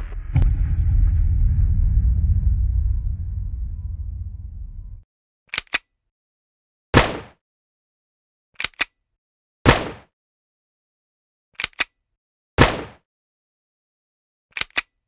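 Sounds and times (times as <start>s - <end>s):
low rumble: 0.0s - 5.1s
gunshot: 0.3s - 5.0s, 7.0s - 7.4s, 9.7s - 10.1s, 12.6s - 13.0s
pistol clicks: 5.5s - 5.9s, 8.6s - 9.0s, 11.6s - 12.0s, 14.5s - 15.0s.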